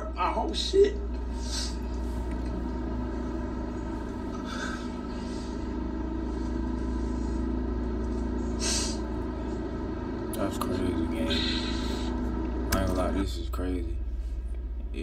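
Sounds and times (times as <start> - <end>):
low electrical hum: 0.0 - 15.0
man sniffing while crying: 8.6 - 9.1.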